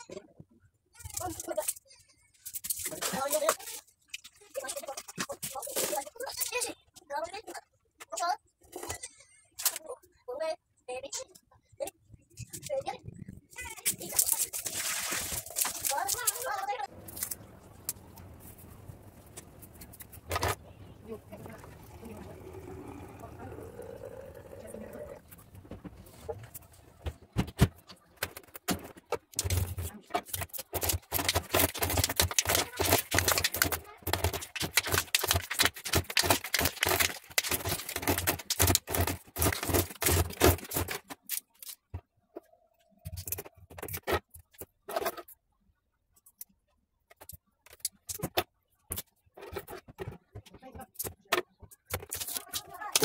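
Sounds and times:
hands scraping and tapping cement: 30.2 - 41.8.

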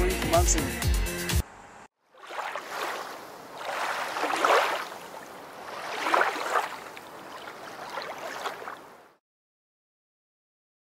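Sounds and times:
rushing water surges: 2.1 - 9.2.

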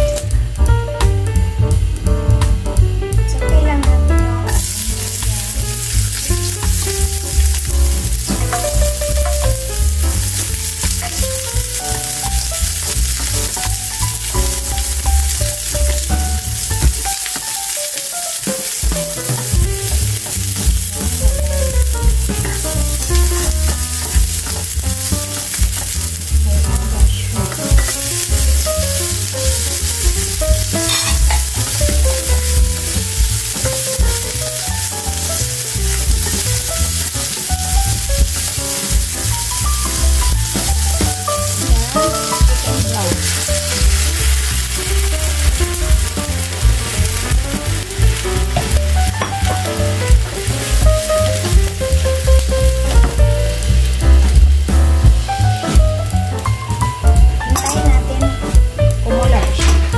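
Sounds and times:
onions sizzling in oil: 3.6 - 59.9
spatula scraping pan: 30.7 - 31.9.

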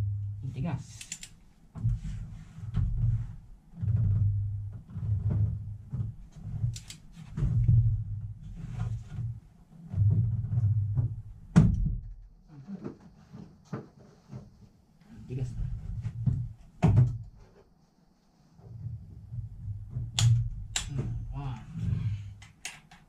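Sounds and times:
torque wrench click: 1.0 - 1.3.

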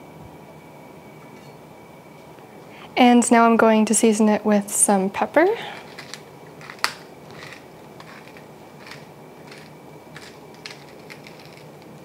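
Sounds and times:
pepper mill grinding: 5.8 - 12.0.

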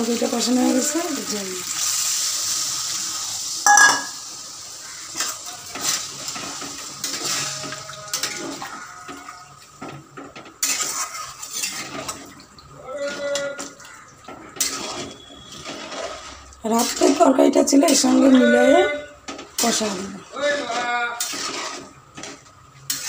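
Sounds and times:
metal spatula scraping a pan: 5.1 - 12.2, 12.9 - 23.0.

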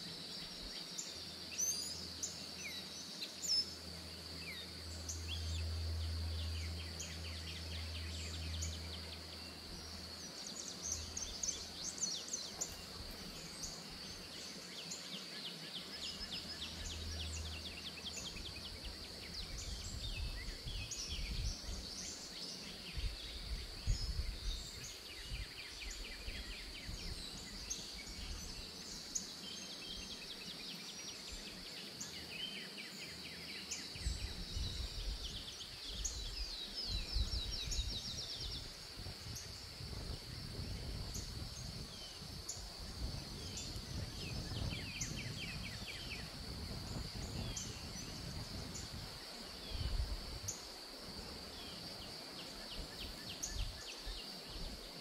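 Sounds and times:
songbirds chirping: 0.0 - 55.0
wind gusts on microphone: 18.3 - 22.0, 22.8 - 28.6, 34.0 - 55.0.

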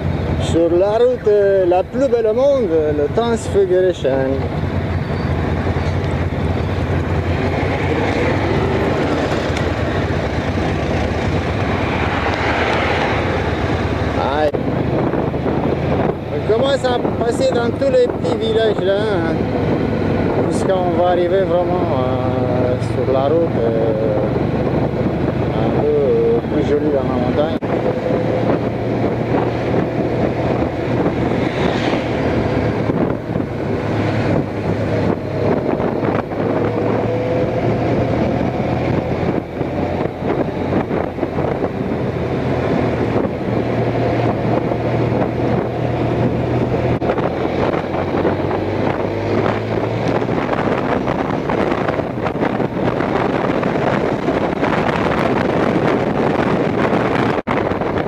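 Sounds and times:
wind rush on microphone: 0.0 - 58.0
motorcycle engine running: 4.1 - 12.2.

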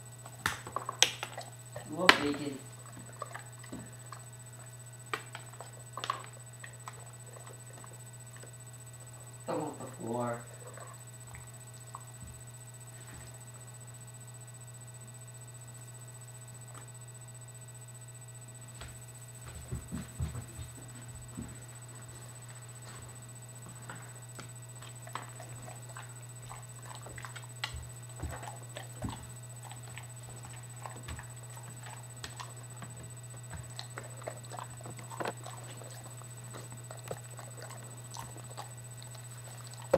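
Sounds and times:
steady low hum: 0.0 - 39.9
dog chewing treats: 0.2 - 12.2, 23.6 - 39.9.

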